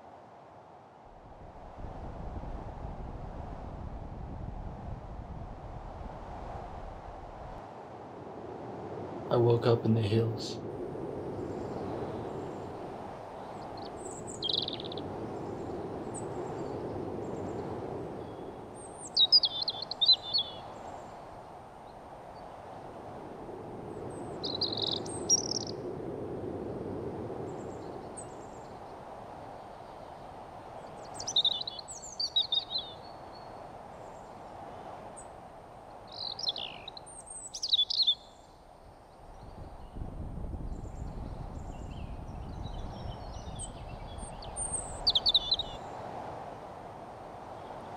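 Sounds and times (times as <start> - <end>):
outdoor background noise: 0.0 - 47.9
birds chirping: 13.4 - 21.3, 24.1 - 25.8, 27.5 - 34.4, 35.9 - 38.5, 40.6 - 45.8.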